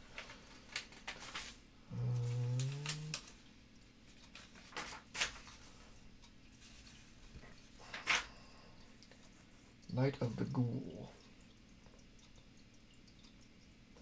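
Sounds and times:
paper pages turning: 0:00.1 - 0:01.6, 0:04.1 - 0:05.8
low voice hum: 0:01.9 - 0:03.3.

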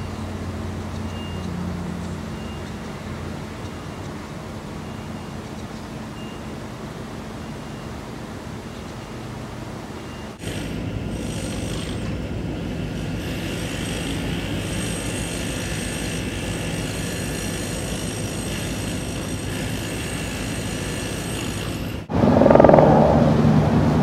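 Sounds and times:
distant engine rumble: 0:21.9 - 0:24.0.

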